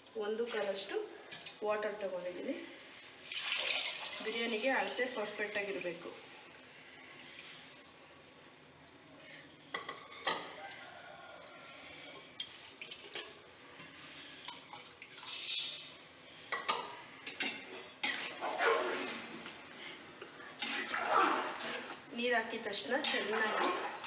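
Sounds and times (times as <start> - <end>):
water pouring into a pot: 3.2 - 5.2, 14.5 - 15.9, 20.6 - 22.1, 23.0 - 24.0.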